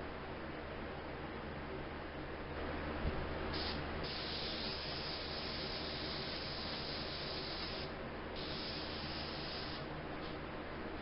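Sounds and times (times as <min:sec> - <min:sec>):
steady low hum: 0:00.0 - 0:11.0
airbrush spraying hiss: 0:03.5 - 0:09.9.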